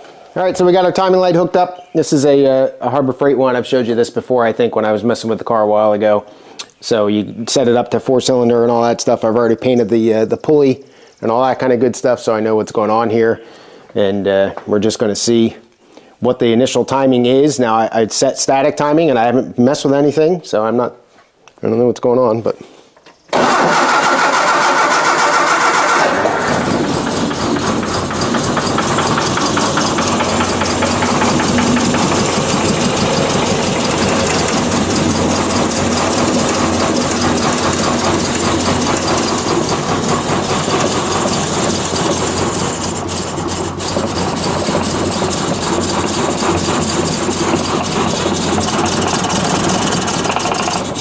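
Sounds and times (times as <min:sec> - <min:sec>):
car engine cranking: 0:23.4 - 0:51.0
car engine idling roughly: 0:23.4 - 0:51.0.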